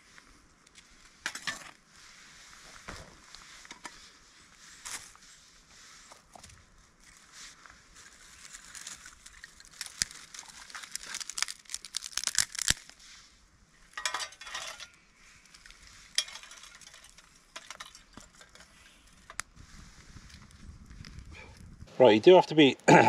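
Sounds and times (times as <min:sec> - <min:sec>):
fire crackling: 0:00.0 - 0:23.0
rustling: 0:01.9 - 0:22.7
twigs snapping: 0:08.3 - 0:13.0.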